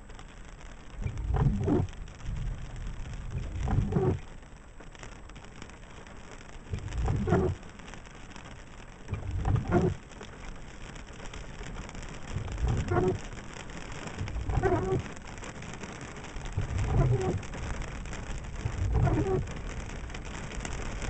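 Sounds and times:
rain falling on a car: 0:00.0 - 0:21.0
windshield wipers thumping and scraping: 0:00.0 - 0:21.0.

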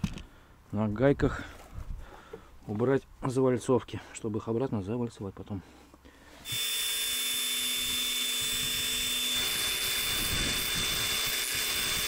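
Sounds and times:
grinder grinding whine: 0:06.4 - 0:12.0.

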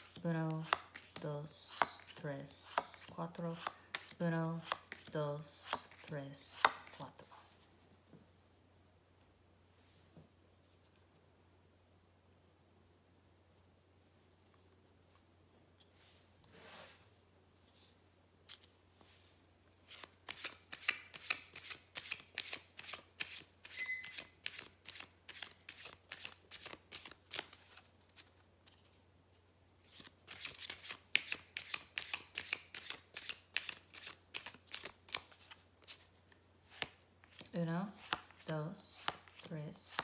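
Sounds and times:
cards being shuffled: 0:00.0 - 0:07.6, 0:19.8 - 0:29.0, 0:29.8 - 0:40.0.

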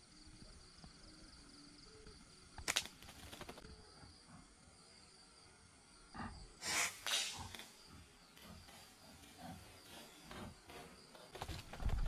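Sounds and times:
high insect trill: 0:00.0 - 0:12.0
sharp clicks and rustling: 0:02.6 - 0:03.7, 0:10.3 - 0:12.0.

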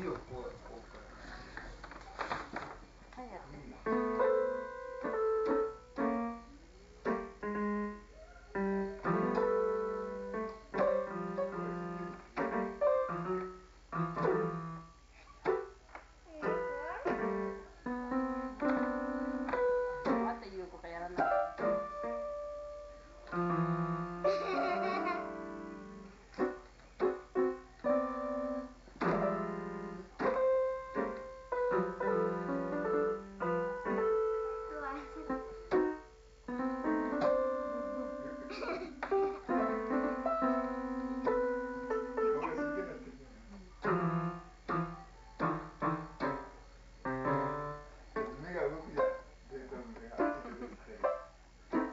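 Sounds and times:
piano note clusters: 0:03.8 - 0:15.8, 0:16.4 - 0:51.9
piano keyboard notes slapped: 0:18.6 - 0:20.3.

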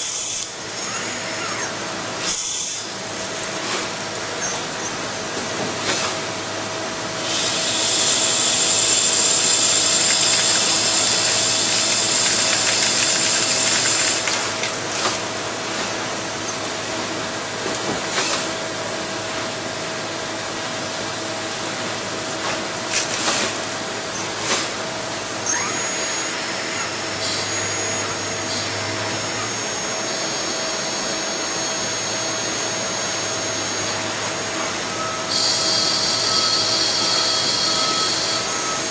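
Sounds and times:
thin high whine: 0:00.0 - 0:03.0, 0:25.4 - 0:38.9
lathe machine hum: 0:06.2 - 0:17.6, 0:23.6 - 0:38.9.

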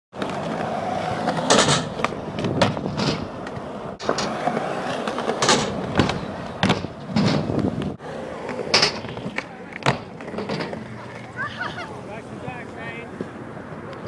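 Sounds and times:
skateboard wheels rolling on concrete: 0:00.1 - 0:14.0
skateboard clacks: 0:00.2 - 0:11.4.

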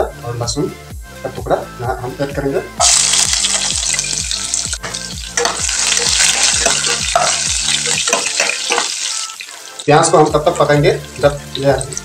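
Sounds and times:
background music with steady beat: 0:00.0 - 0:12.0
metal spatula stirring: 0:02.8 - 0:09.8
vegetables sizzling in hot oil: 0:02.8 - 0:12.0.

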